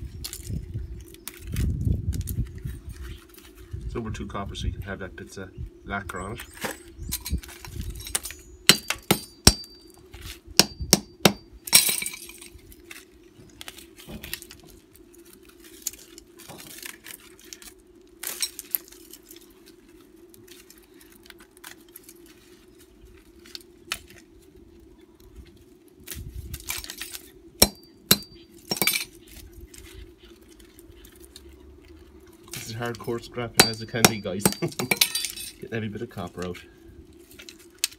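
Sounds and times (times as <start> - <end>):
faint steady hum: 0.0 - 37.9
broken plastic clinking on concrete: 33.6 - 35.6.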